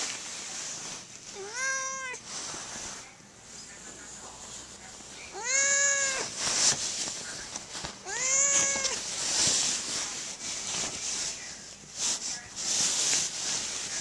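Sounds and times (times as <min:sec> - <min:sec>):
bedsheet fabric rustling: 0:00.0 - 0:14.0
cat meowing: 0:01.4 - 0:02.2, 0:05.3 - 0:06.3, 0:08.0 - 0:09.0.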